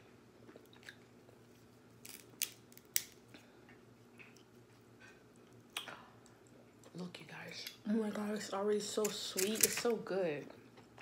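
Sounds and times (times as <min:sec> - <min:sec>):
crab shell cracking: 0:02.0 - 0:03.2.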